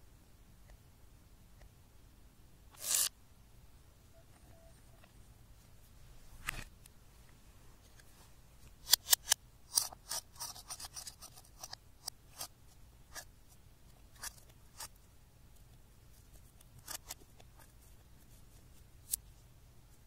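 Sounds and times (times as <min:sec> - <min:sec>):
metal pick scratching makeup powder: 0:02.7 - 0:03.1, 0:08.8 - 0:12.5, 0:14.1 - 0:15.0, 0:16.6 - 0:17.7.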